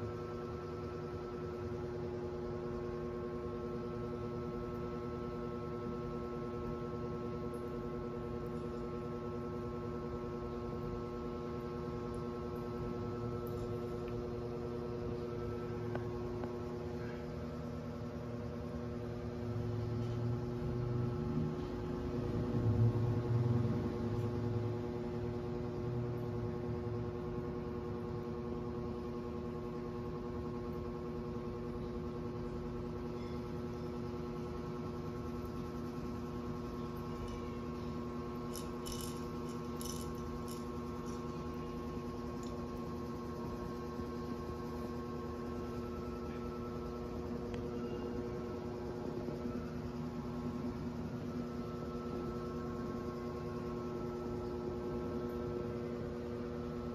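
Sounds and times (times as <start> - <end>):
small electric motor humming: 35.4 - 55.8.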